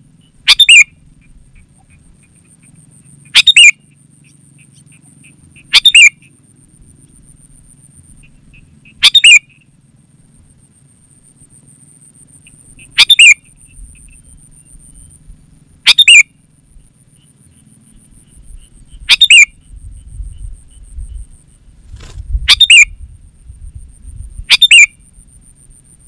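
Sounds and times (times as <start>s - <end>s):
bird bubbly calls: 0.5s - 0.9s, 1.6s - 3.8s, 8.2s - 9.5s, 12.8s - 14.2s, 19.0s - 19.5s, 22.5s - 22.8s.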